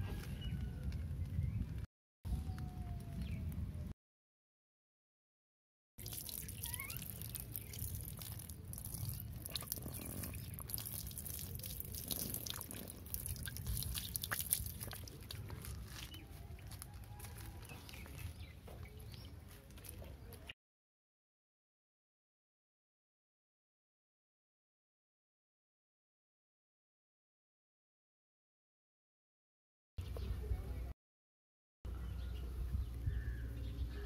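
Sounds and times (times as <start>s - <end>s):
water pouring and dripping: 6.0s - 15.9s.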